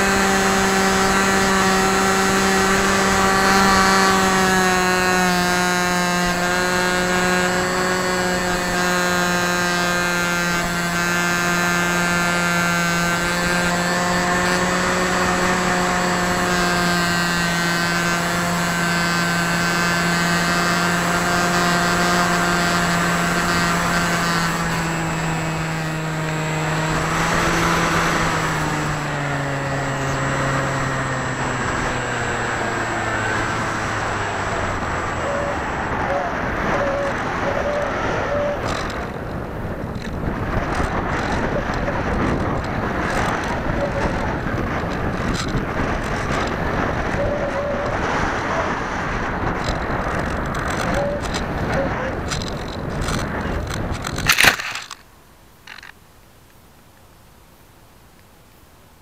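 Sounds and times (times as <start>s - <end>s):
electric motor high whine: 0.0s - 55.0s.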